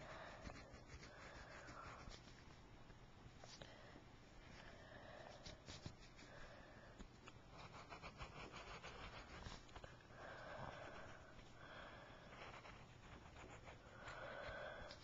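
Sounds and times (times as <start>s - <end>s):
pencil scratching on paper: 0.0s - 2.5s, 7.5s - 9.8s, 12.3s - 15.0s.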